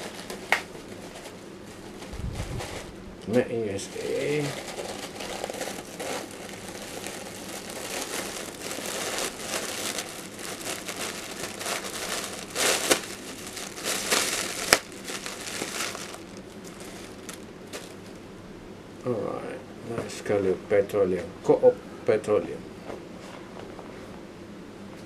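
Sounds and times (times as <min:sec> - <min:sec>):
plastic bag crinkling: 0:00.0 - 0:03.0, 0:03.8 - 0:18.2.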